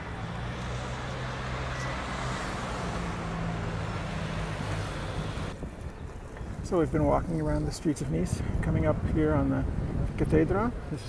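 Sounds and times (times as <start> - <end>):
cars rushing past: 0.0 - 5.7
vehicle engine hum: 0.0 - 6.7.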